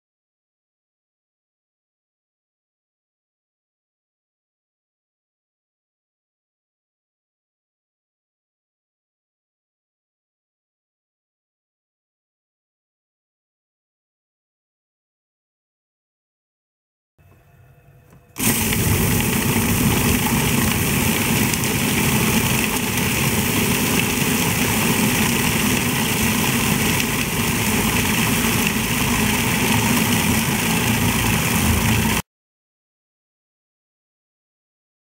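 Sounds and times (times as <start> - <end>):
food processor grinding: 18.4 - 32.2.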